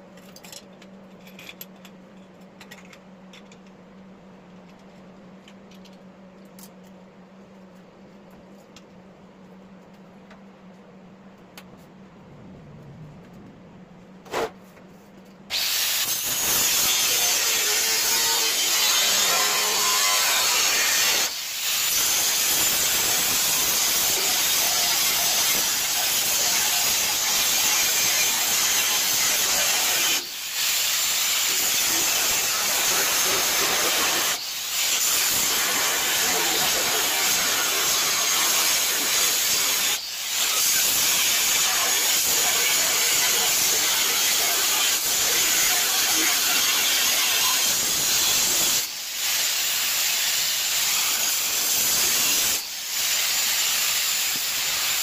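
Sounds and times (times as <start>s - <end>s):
angle grinder cutting sheet steel: 15.5s - 55.0s.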